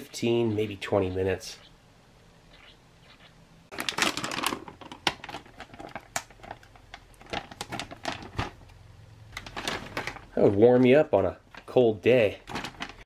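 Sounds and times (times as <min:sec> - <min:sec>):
plastic bag crinkling: 0:03.7 - 0:13.0.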